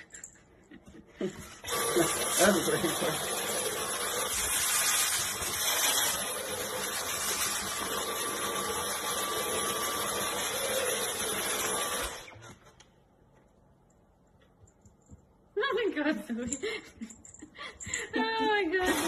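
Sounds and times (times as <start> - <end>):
vacuum cleaner running: 1.2 - 12.7, 18.7 - 19.0.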